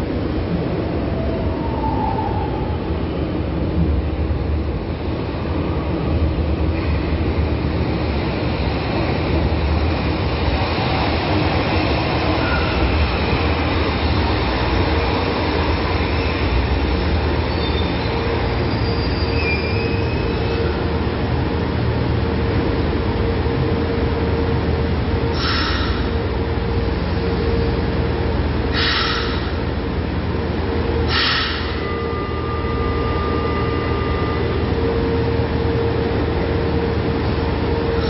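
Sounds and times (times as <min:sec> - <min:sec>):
train wheels rumbling on rail: 0:00.0 - 0:38.0
train brakes squealing: 0:12.3 - 0:13.0, 0:17.5 - 0:20.8, 0:25.3 - 0:26.1, 0:28.7 - 0:29.6, 0:31.1 - 0:34.8.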